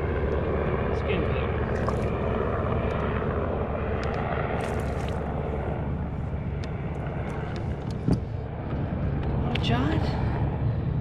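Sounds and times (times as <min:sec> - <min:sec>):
distant engine drone: 0:00.0 - 0:11.0.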